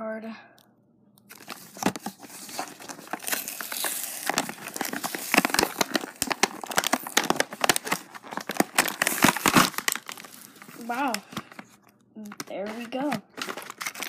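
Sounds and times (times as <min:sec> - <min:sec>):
plastic packaging crinkling: 0:01.3 - 0:14.0.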